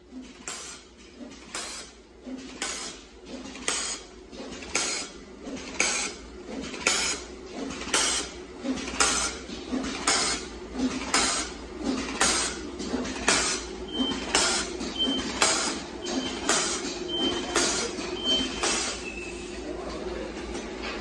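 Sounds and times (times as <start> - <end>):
steady mechanical clatter: 0.0 - 19.1
machine hissing clack: 0.1 - 19.4.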